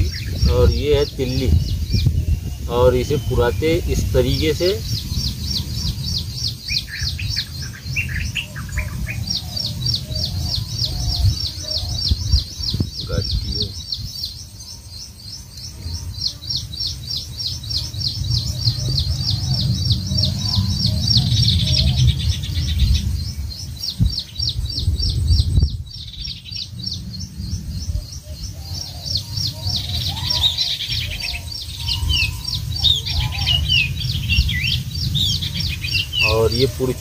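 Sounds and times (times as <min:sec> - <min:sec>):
birds chirping: 0:00.0 - 0:37.0
low rumble: 0:16.1 - 0:37.0.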